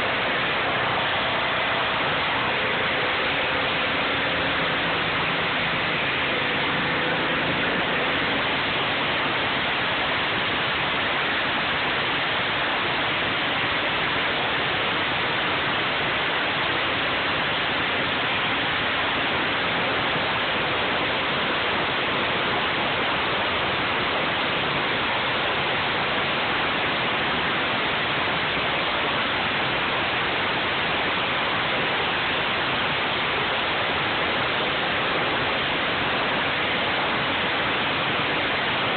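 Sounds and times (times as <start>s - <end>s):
pressure washer jet hissing: 0.0s - 14.6s.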